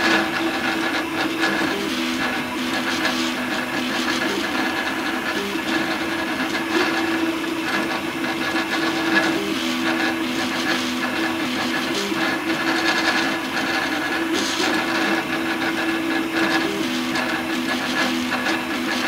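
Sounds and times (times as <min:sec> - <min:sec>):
stepper motors humming: 0:00.0 - 0:19.0.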